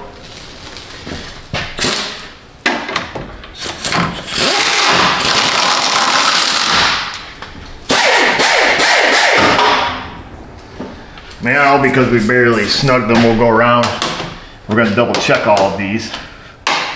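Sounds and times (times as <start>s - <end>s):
impact wrench running: 3.6s - 7.1s, 7.9s - 10.0s.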